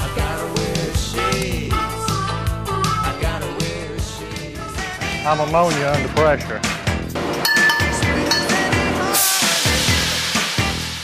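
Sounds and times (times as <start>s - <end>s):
rock music: 0.0s - 11.0s.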